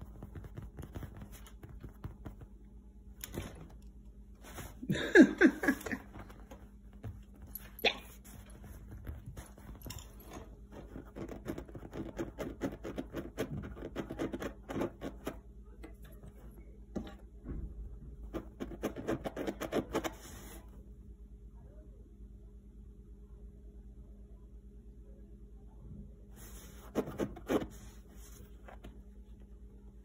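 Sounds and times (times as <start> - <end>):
fingertips scratching and tapping leather: 0.0 - 2.4, 8.3 - 15.4.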